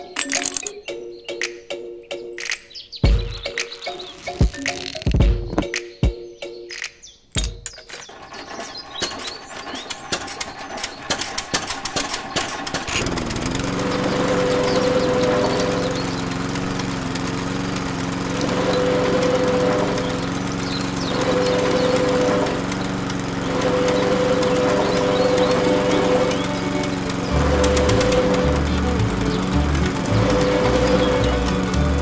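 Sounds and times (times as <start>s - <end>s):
toy engine rattling and humming: 0.0s - 0.7s, 7.4s - 32.0s.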